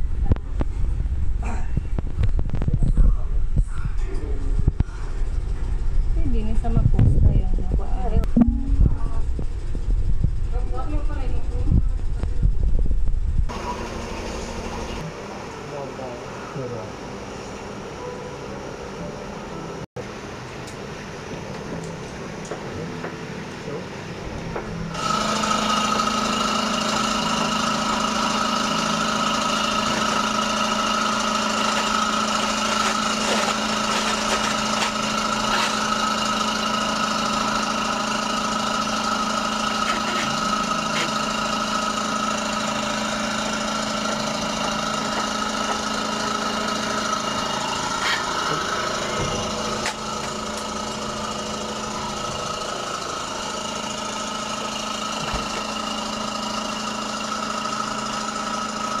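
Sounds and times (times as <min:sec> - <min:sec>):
motor humming: 0:24.1 - 0:59.0.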